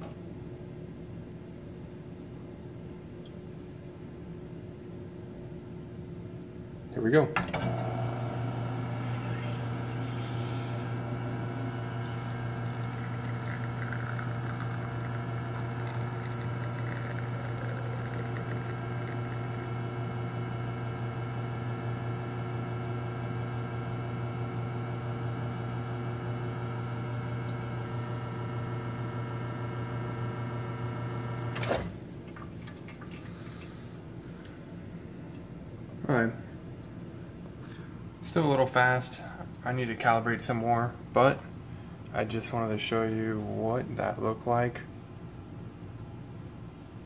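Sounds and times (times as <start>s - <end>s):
espresso machine pump humming: 7.6s - 31.8s.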